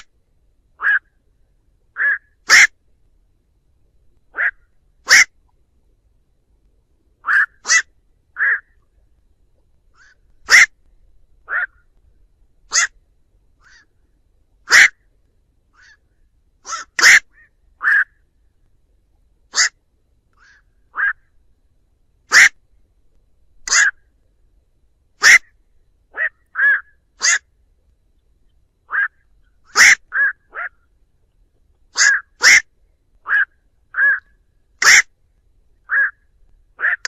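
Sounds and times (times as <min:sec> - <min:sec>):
herons calling: 0:00.8 - 0:01.2, 0:01.9 - 0:02.8, 0:04.3 - 0:05.6, 0:07.2 - 0:08.9, 0:09.9 - 0:11.9, 0:12.6 - 0:13.0, 0:13.6 - 0:14.0, 0:14.7 - 0:15.0, 0:15.7 - 0:18.3, 0:19.5 - 0:19.8, 0:20.4 - 0:21.3, 0:22.3 - 0:22.6, 0:23.6 - 0:24.0, 0:25.2 - 0:27.5, 0:28.8 - 0:31.0, 0:31.9 - 0:35.1, 0:35.8 - 0:36.2, 0:36.8 - 0:37.0.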